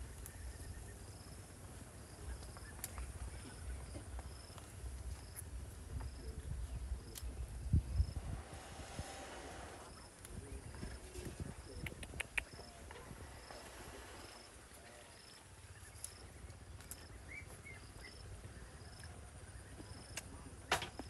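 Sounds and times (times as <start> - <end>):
insect chirping: 0.0 - 21.0
sharp clicks: 11.8 - 12.7.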